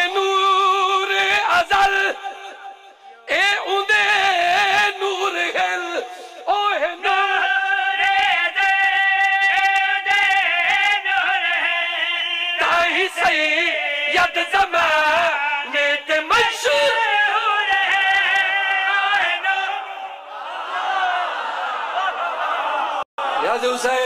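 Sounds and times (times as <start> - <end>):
men chanting devotional poem: 0.0 - 24.0.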